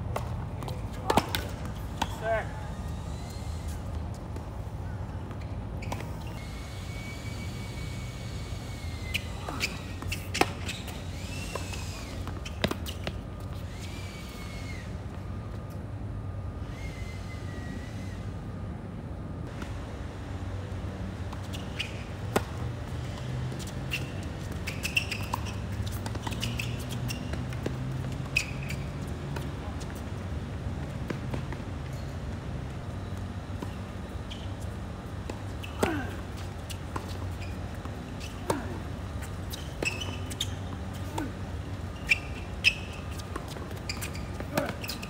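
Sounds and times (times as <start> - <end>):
shoes squeaking on court: 0.0 - 14.9, 21.2 - 45.0
steady low hum: 0.0 - 45.0
rackets striking tennis ball: 0.1 - 2.3
rackets hitting tennis ball: 0.1 - 2.5, 33.6 - 45.0.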